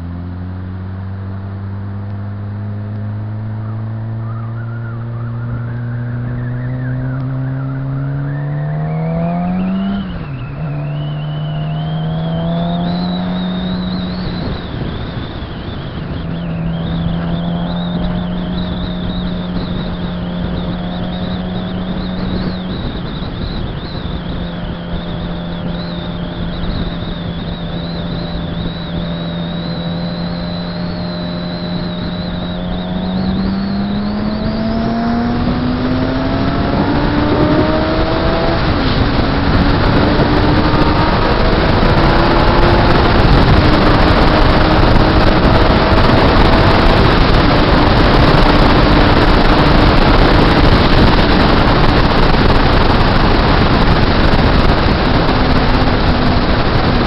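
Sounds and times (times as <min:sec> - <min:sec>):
motorcycle engine: 0:00.0 - 0:57.0
wind rush: 0:03.2 - 0:57.0.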